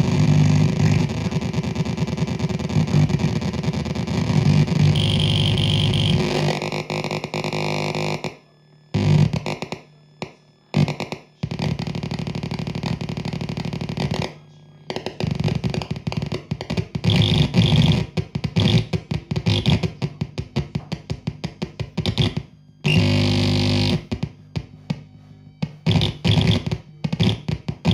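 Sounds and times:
gritty electronic synth noise: 0.0s - 25.0s, 25.7s - 27.9s
low synth drone: 4.9s - 6.8s
stuttering synth pulses: 4.9s - 7.3s.

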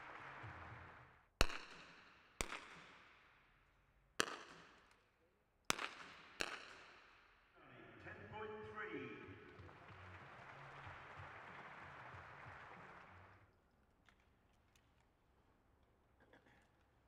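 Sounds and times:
rifle shots with echo: 1.4s - 3.2s, 4.2s - 4.8s, 5.7s - 7.2s.

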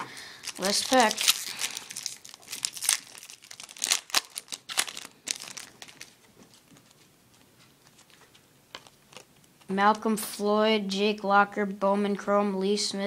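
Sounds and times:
foil wrapper crinkling: 0.0s - 9.7s.

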